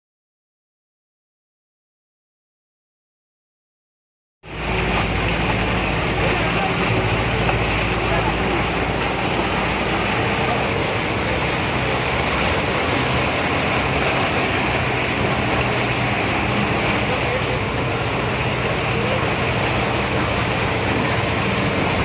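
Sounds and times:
low engine hum: 0:04.4 - 0:22.0
water splashing beside wheels: 0:04.5 - 0:22.0.

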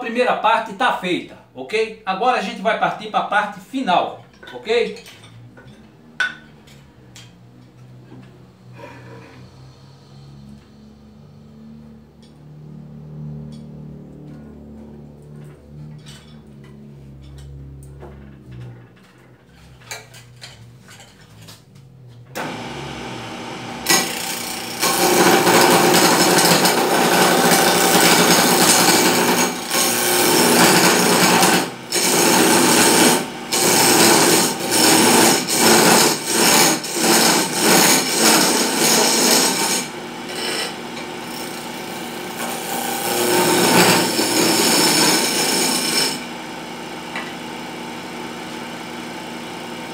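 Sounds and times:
lathe tool cutting wood: 0:22.4 - 0:49.9.

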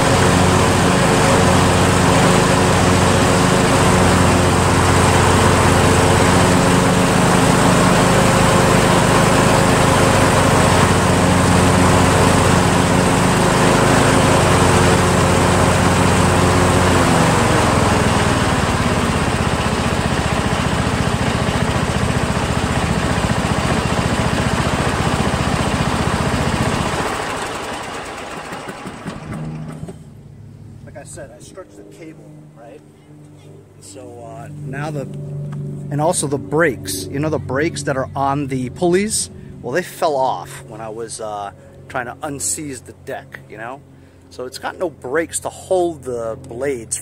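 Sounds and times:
lawn tractor engine running: 0:00.0 - 0:31.6, 0:33.6 - 0:43.1.

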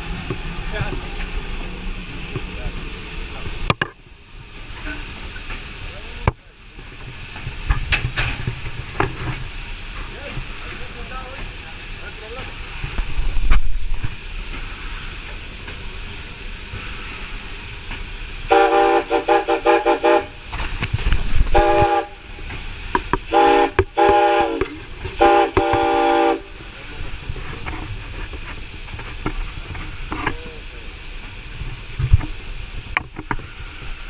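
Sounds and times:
steady hiss of steam: 0:00.0 - 0:34.0
steam locomotive whistle: 0:18.5 - 0:20.4, 0:21.5 - 0:22.3, 0:23.3 - 0:26.6.

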